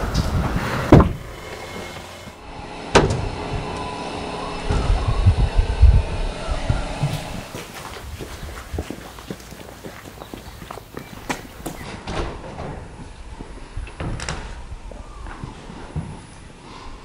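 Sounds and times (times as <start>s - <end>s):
truck engine rumble: 0.0s - 11.8s
sharp loud knocks: 0.9s - 1.4s.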